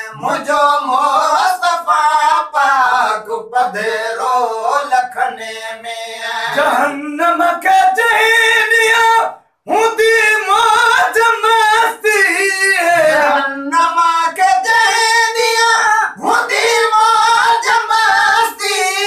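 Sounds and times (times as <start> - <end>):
men singing unaccompanied: 0.0 - 19.0.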